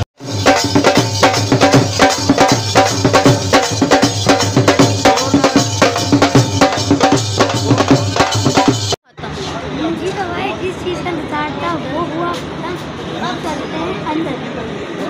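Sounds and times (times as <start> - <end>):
drums playing fast rhythm: 0.0 - 9.0.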